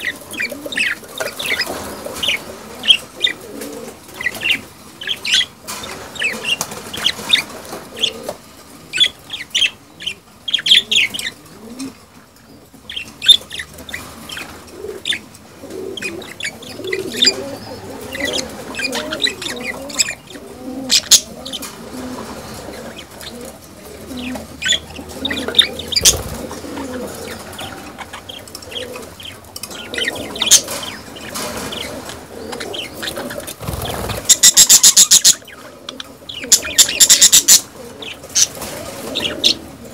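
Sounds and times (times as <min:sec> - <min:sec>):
budgerigars chirping and squawking: 0:00.0 - 0:11.9, 0:12.6 - 0:39.9
low wavering cooing: 0:14.7 - 0:30.8.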